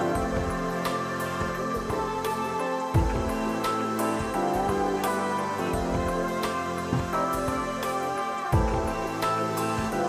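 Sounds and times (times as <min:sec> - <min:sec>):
gentle plucked-string music: 0:00.0 - 0:10.0
low thump: 0:06.9 - 0:07.5.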